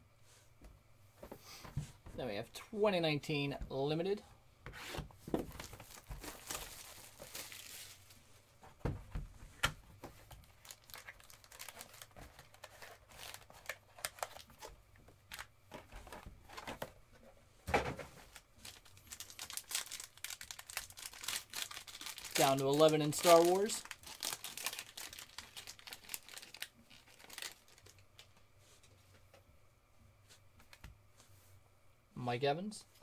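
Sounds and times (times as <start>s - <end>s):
packaging rustling and crinkling: 5.2s - 9.2s, 10.0s - 17.0s, 18.0s - 28.4s.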